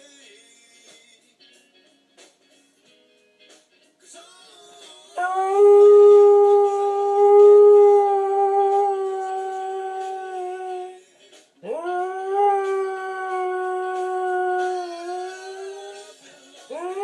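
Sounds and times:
dog yodel-howling: 0:05.2 - 0:11.0, 0:11.6 - 0:16.1, 0:16.7 - 0:17.0.

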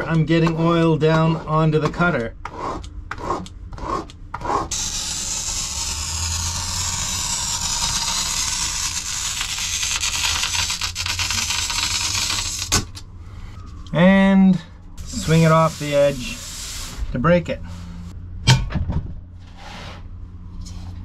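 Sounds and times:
glass cutter scoring glass: 0:04.7 - 0:12.9.

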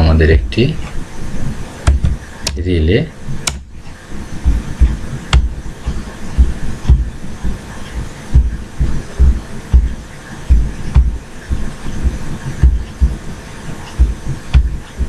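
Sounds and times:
dull deep thumps: 0:01.5 - 0:02.6, 0:03.4 - 0:15.0
sharp click: 0:03.4 - 0:03.7.

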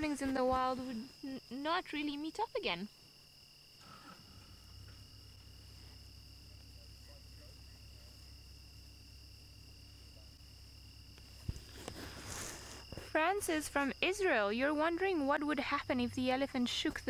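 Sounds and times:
crickets chirring: 0:00.0 - 0:17.0
low steady hum: 0:04.0 - 0:17.0.

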